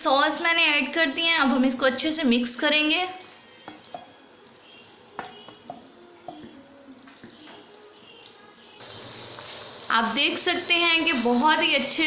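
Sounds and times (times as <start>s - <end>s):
spoon knocking against pan: 5.2s - 6.6s.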